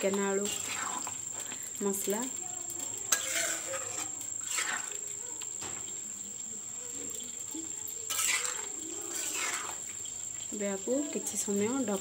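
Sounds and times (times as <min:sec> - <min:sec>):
high-pitched insect trill: 0:00.0 - 0:12.0
spoon scraping thick curry: 0:00.4 - 0:01.3, 0:02.8 - 0:05.2, 0:08.1 - 0:10.2.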